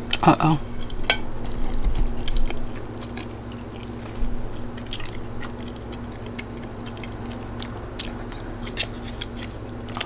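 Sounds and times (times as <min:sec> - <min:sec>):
person chewing soft food: 0:00.0 - 0:10.0.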